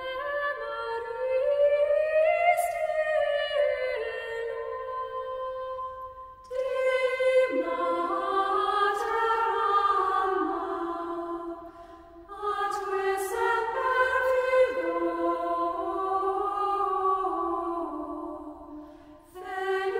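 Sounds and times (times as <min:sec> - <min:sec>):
unaccompanied choral singing: 0:06.4 - 0:19.9.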